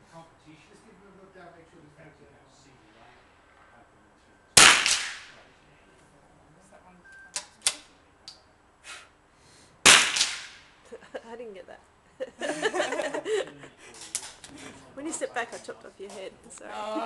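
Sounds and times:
rifle shots echoing: 4.6s - 5.4s, 9.8s - 10.8s.

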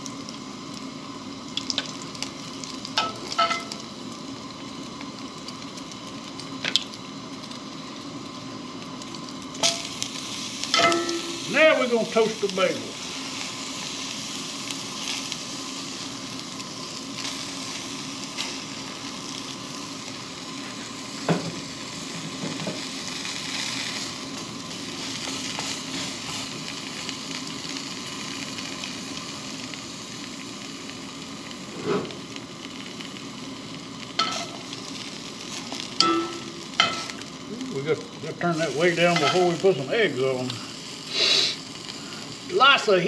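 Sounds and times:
bagels sizzling in a skillet: 0.0s - 43.0s
metal tongs knocking on pan: 10.8s - 11.4s, 36.0s - 37.0s.

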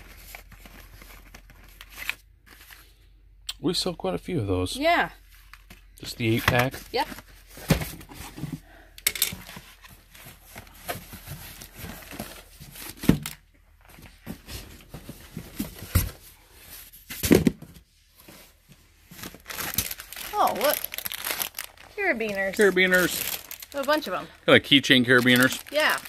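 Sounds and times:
cardboard rustling and scraping: 5.2s - 8.7s, 9.3s - 24.2s.

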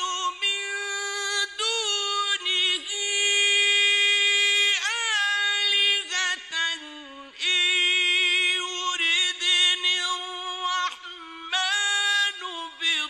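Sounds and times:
man chanting melodic recitation: 0.0s - 13.0s.

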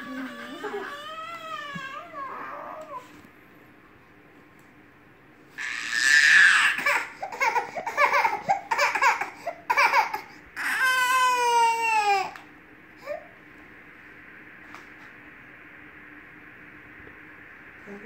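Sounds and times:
baby crying: 0.0s - 3.1s, 5.6s - 12.4s.

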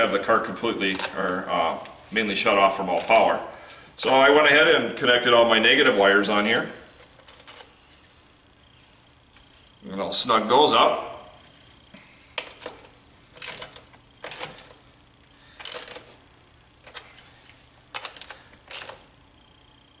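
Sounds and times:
ratchet wrench clicking: 13.4s - 14.6s, 15.6s - 16.1s, 18.0s - 19.0s.

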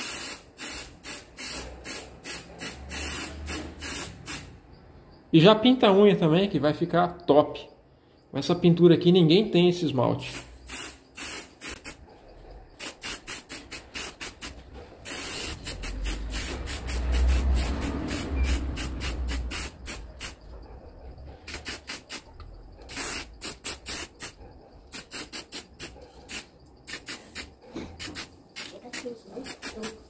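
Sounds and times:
aerosol spray hissing: 0.0s - 4.6s, 10.2s - 12.0s, 12.8s - 20.4s, 21.5s - 22.3s, 22.9s - 30.0s.

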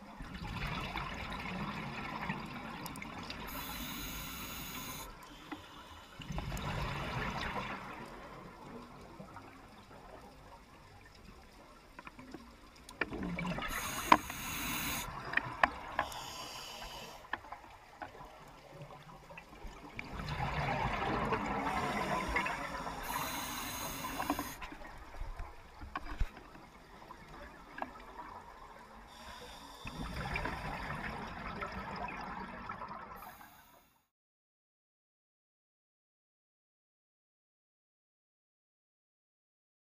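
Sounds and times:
underwater bubbling and hiss: 0.0s - 11.1s, 13.2s - 33.8s
diver breathing through regulator: 3.5s - 6.2s, 13.7s - 15.1s, 16.0s - 17.3s, 21.6s - 24.6s, 29.1s - 30.9s.

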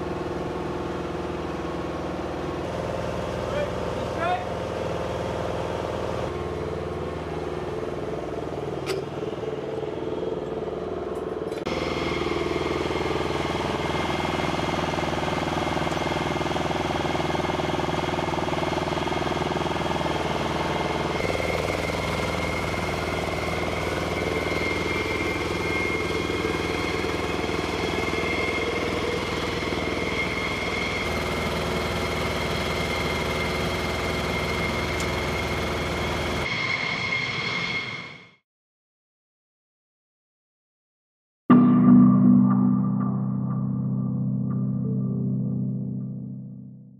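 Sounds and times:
engine and machinery noise: 0.0s - 38.2s
high whine: 41.5s - 46.9s.

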